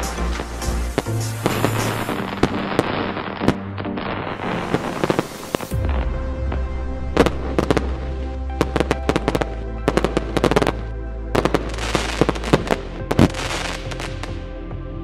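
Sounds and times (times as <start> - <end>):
electronic dance music: 0.0 - 2.3
firework bangs: 0.0 - 10.7
dense firework crackle: 0.0 - 14.4.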